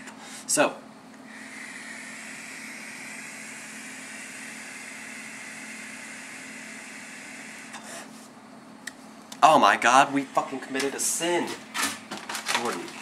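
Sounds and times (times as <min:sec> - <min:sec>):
airy hiss of vaporizer inhale: 0:01.2 - 0:08.3.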